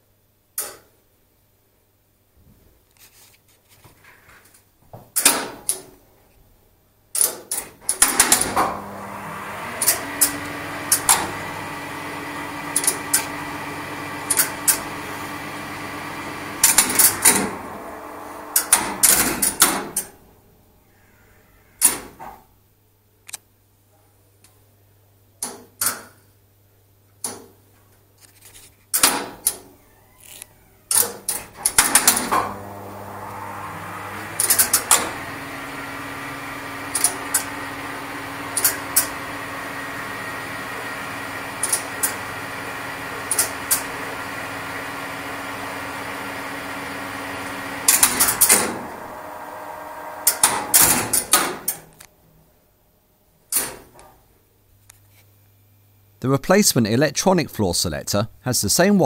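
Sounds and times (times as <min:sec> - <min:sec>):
electrical hum of lift machinery: 0:04.9 - 0:56.8
relays clacking: 0:12.7 - 0:13.4, 0:14.2 - 0:15.0, 0:18.5 - 0:20.2, 0:34.1 - 0:35.3, 0:36.9 - 0:37.6, 0:38.5 - 0:39.2, 0:41.6 - 0:42.2, 0:43.2 - 0:43.9, 0:50.2 - 0:52.1.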